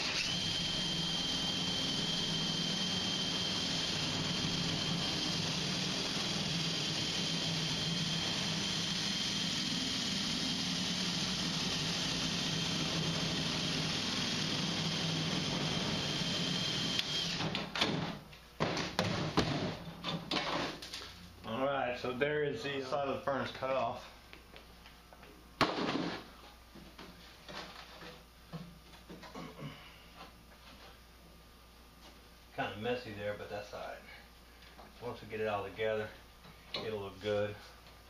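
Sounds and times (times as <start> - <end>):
cordless drill cutting sheet metal: 0.0 - 17.6.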